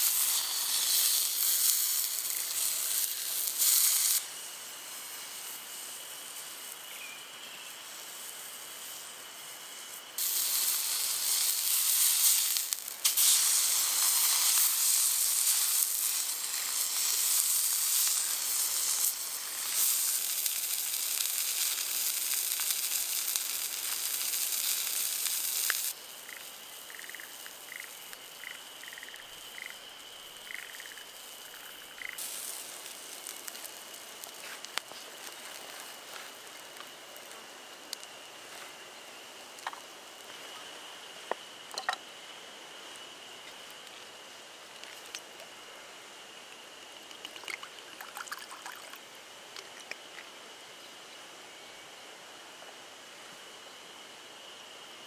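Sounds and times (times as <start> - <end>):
meat sizzling on hot iron plate: 0.0 - 6.9, 7.8 - 37.4.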